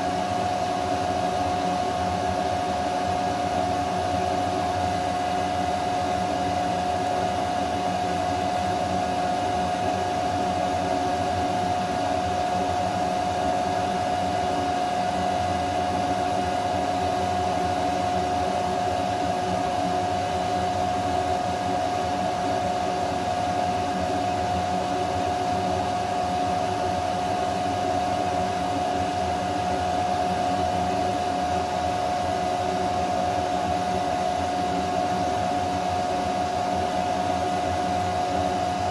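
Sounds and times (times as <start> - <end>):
fans and pump whirring: 0.0 - 38.9.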